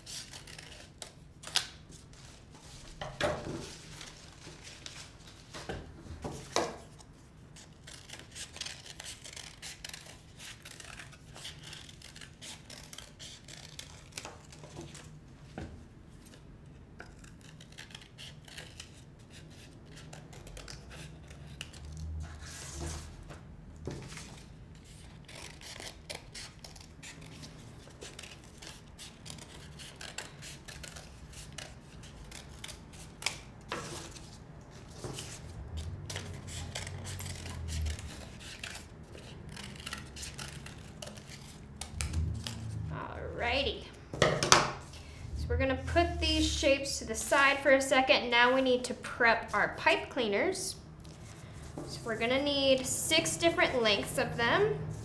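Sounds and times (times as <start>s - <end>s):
scissors snipping paper: 0.0s - 1.8s, 7.6s - 15.1s, 17.0s - 22.1s, 24.9s - 34.4s, 35.1s - 42.6s
paper rustling: 0.2s - 5.7s.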